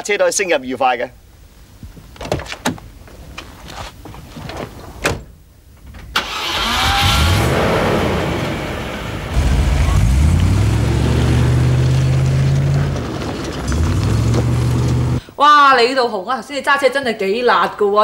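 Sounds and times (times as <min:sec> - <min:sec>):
car engine starting and pulling away: 0:06.1 - 0:15.2.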